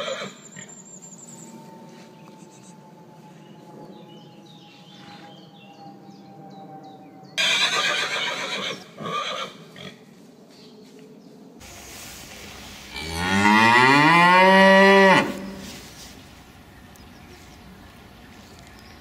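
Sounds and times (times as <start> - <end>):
horse whinnying: 0.0 - 0.4, 7.4 - 9.6.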